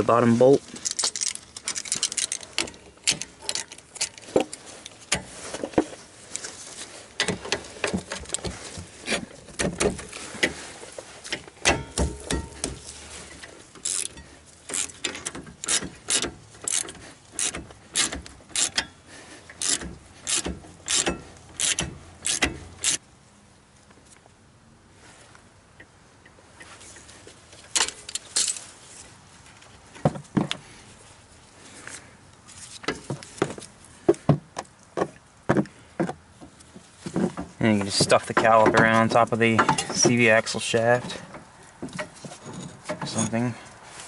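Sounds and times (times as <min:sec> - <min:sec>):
socket ratchet clicking: 0:13.8 - 0:18.9, 0:19.6 - 0:23.0.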